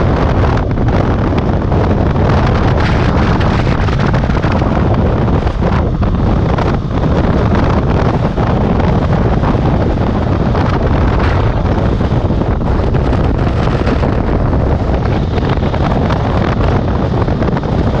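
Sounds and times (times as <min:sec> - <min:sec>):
motorcycle engine cruising: 0:00.0 - 0:18.0
wind buffeting microphone: 0:00.0 - 0:18.0.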